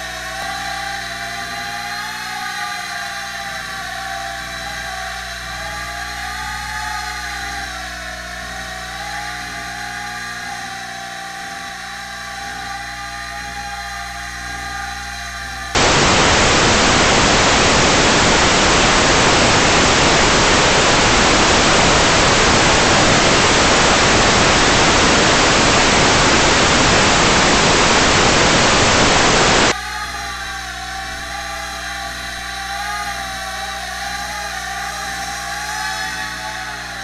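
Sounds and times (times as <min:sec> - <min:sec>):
loud static hiss: 0:15.8 - 0:29.8.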